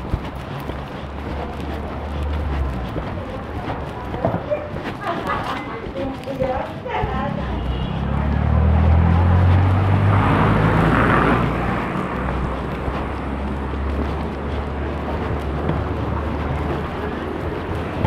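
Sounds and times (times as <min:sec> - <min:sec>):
low traffic rumble: 0:00.0 - 0:18.0
vehicle engine passing close: 0:07.0 - 0:18.0.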